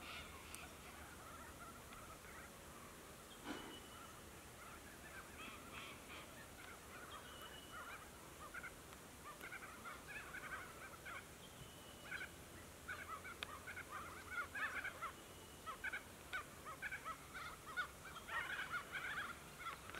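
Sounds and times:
birds chirping: 0.0s - 19.9s
thin bird whistles: 3.4s - 4.2s.

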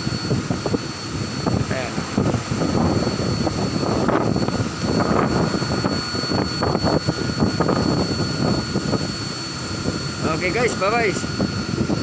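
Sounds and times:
high-pitched whine: 0.0s - 12.0s
wind buffeting microphone: 0.0s - 12.0s.

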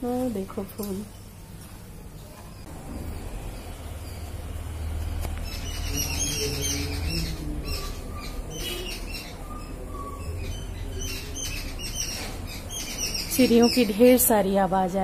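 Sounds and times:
small birds chirping: 0.0s - 15.0s
low rumble: 2.7s - 8.4s.

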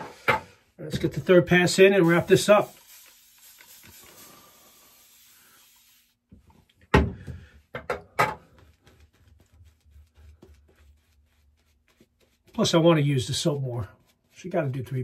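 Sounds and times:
soft rubbing hiss: 1.2s - 6.7s, 8.5s - 15.0s.

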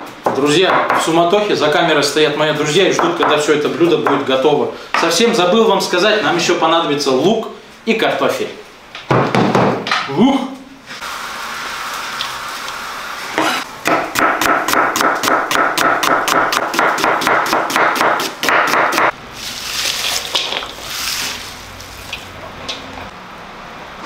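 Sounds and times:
knife chopping on wooden board: 13.4s - 19.1s
sliced onion rustling: 19.3s - 22.4s.

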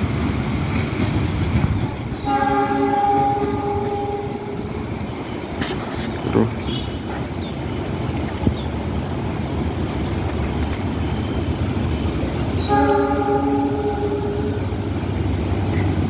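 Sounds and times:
train rumbling on tracks: 0.0s - 16.0s
train horn: 2.2s - 4.8s, 12.6s - 14.9s.

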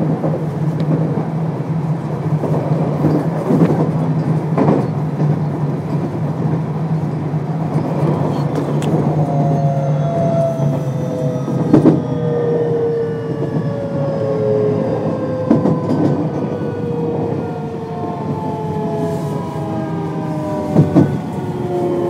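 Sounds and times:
electric train motor whine: 8.8s - 22.0s.

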